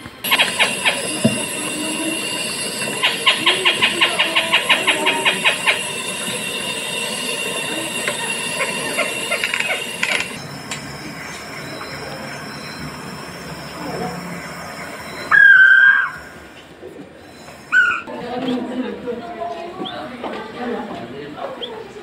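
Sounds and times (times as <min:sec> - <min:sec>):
bird call through speaker: 0:14.1 - 0:16.4, 0:17.3 - 0:18.1.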